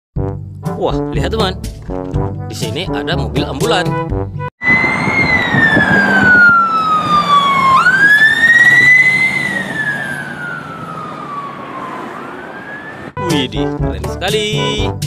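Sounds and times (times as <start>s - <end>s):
ambulance siren wailing: 4.6s - 13.2s.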